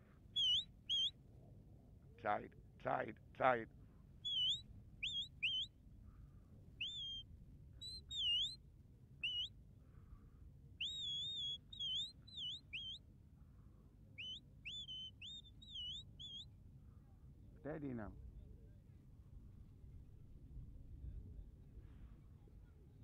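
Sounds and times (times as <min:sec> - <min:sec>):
shepherd's whistle notes: 0:00.4 - 0:01.2, 0:04.2 - 0:05.7, 0:06.8 - 0:08.6, 0:09.2 - 0:09.5, 0:10.8 - 0:13.0, 0:14.2 - 0:16.5.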